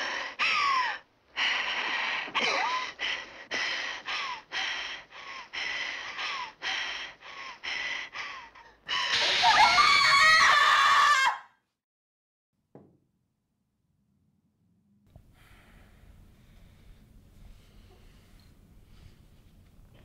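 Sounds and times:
woman gasping breaths with squeals: 0:08.4 - 0:10.1
woman shrieking: 0:09.1 - 0:11.5.

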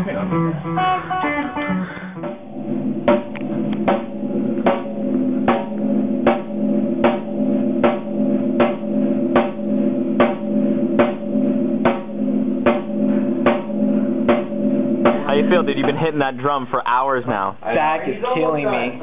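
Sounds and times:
drum struck repeatedly: 0:02.2 - 0:17.1.

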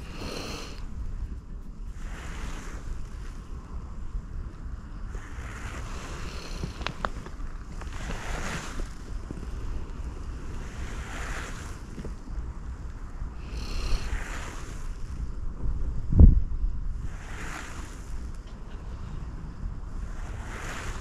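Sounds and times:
wind buffeting microphone: 0:00.0 - 0:21.0
faint sharp clicks: 0:06.6 - 0:08.2.

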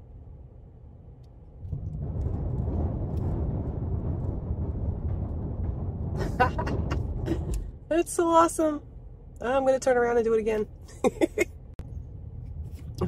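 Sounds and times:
tyres rumbling over wooden planks: 0:01.6 - 0:07.9.

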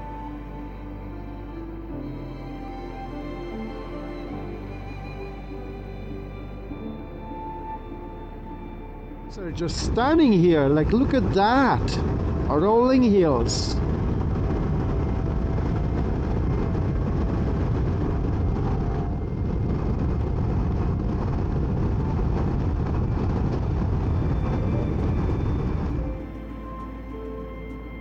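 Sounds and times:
music: 0:00.0 - 0:28.0
wind buffeting microphone: 0:09.3 - 0:28.0.

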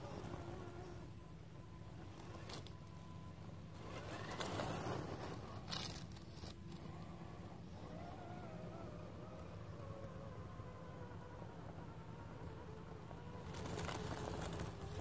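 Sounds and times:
toy car crunching over leaves: 0:02.1 - 0:03.0, 0:03.7 - 0:07.0, 0:12.4 - 0:15.0.

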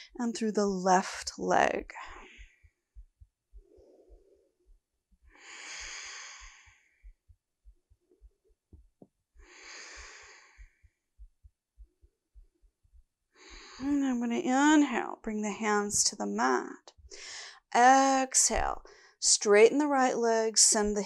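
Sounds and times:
woman breathing slowly: 0:01.9 - 0:07.4, 0:09.4 - 0:11.3, 0:13.4 - 0:14.0, 0:17.1 - 0:17.7, 0:18.8 - 0:19.2.

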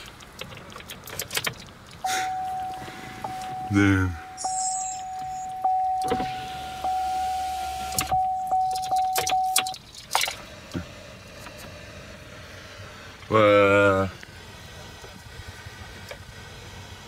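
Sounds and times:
scattered clicks: 0:00.0 - 0:02.0
electric window motor: 0:02.0 - 0:08.4
high electronic tone: 0:02.0 - 0:09.8.

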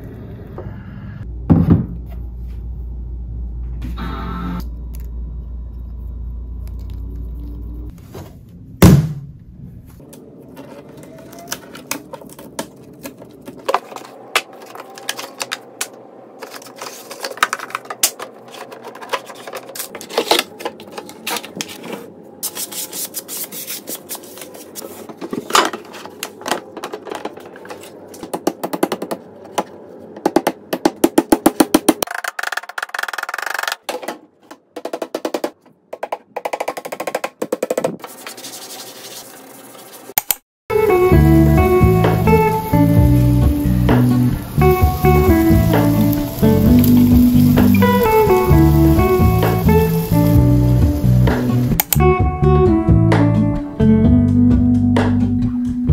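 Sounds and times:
light background music: 0:40.7 - 0:55.9
clicks: 0:51.8 - 0:52.0.

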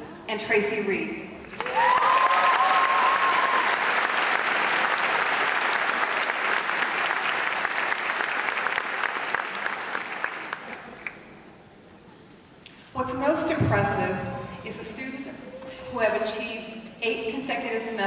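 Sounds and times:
audience applause: 0:01.5 - 0:11.2
person cheering: 0:01.6 - 0:03.8.

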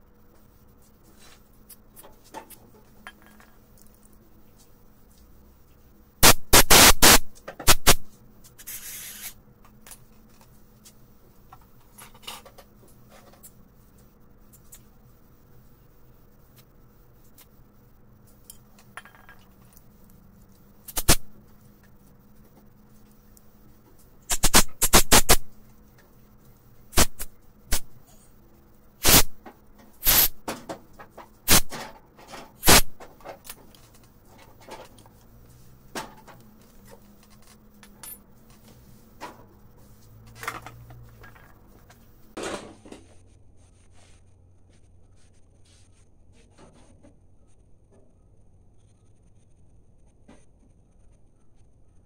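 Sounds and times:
aerosol spray: 0:06.2 - 0:09.4, 0:24.3 - 0:25.5, 0:29.0 - 0:29.4, 0:30.0 - 0:30.4, 0:32.6 - 0:32.9
compressed air blasts: 0:06.2 - 0:09.4, 0:20.9 - 0:21.3, 0:24.3 - 0:25.5, 0:26.9 - 0:28.0, 0:29.0 - 0:29.4, 0:30.0 - 0:30.4, 0:31.5 - 0:31.8, 0:32.6 - 0:33.0.

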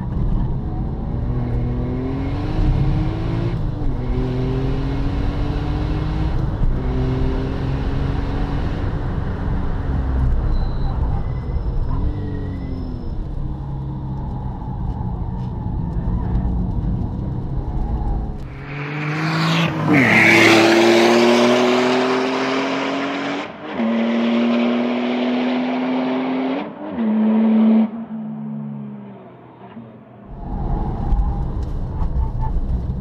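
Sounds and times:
car accelerating hard: 0:00.0 - 0:10.4, 0:16.2 - 0:31.4
car engine rumbling: 0:00.0 - 0:33.0.

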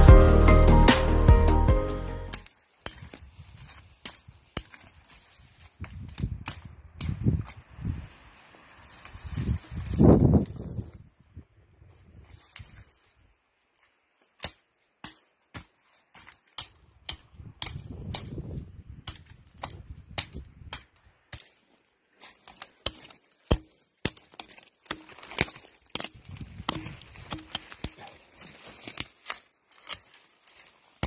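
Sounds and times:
twigs snapping and crackling: 0:02.3 - 0:07.8, 0:08.7 - 0:10.6, 0:14.2 - 0:31.0
brush rustling: 0:02.3 - 0:11.1, 0:19.4 - 0:31.0.

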